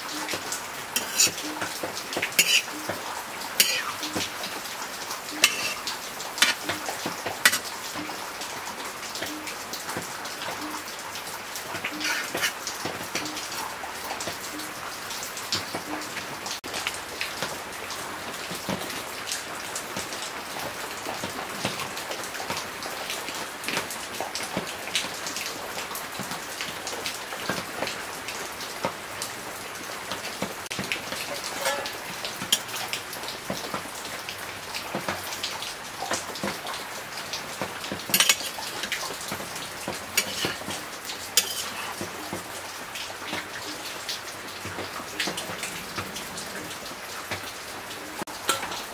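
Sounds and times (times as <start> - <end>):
pork sizzling in a wok: 0.2 - 4.7, 5.3 - 8.2, 11.7 - 13.2, 30.7 - 33.9, 36.1 - 42.6, 48.4 - 48.9
metal ladle clicking on pan: 1.0 - 1.4, 2.3 - 2.8, 3.6 - 4.3, 5.4 - 5.8, 6.4 - 6.8, 7.4 - 7.7, 31.6 - 32.7, 38.1 - 39.0, 40.2 - 40.8, 41.4 - 41.9.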